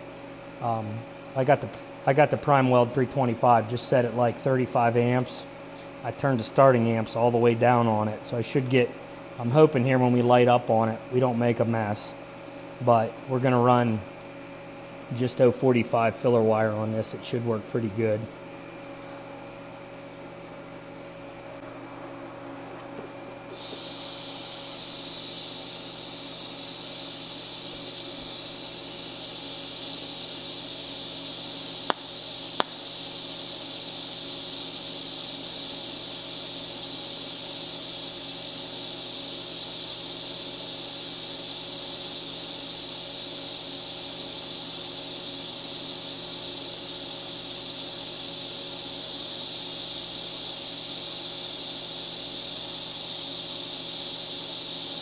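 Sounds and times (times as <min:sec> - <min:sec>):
welding arc hissing: 0:22.8 - 0:55.0
sharp clicks: 0:31.9 - 0:32.8.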